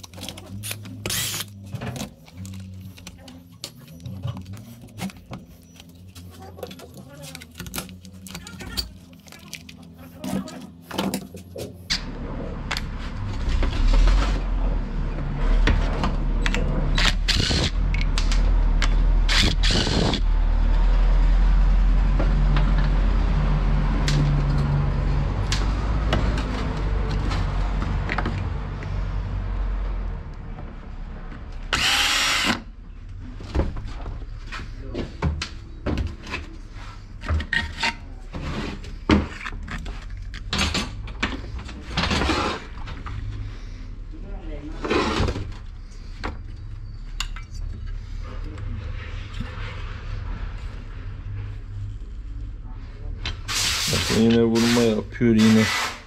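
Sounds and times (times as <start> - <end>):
power tool humming: 31.7 - 32.6.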